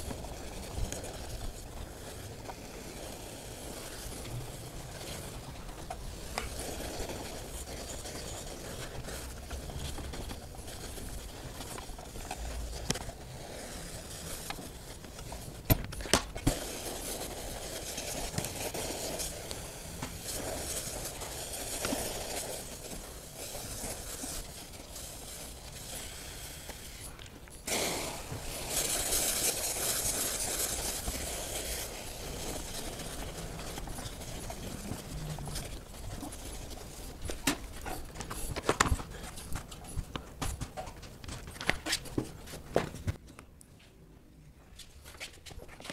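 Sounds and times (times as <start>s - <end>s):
steam hiss: 0.0s - 15.6s, 16.4s - 34.9s.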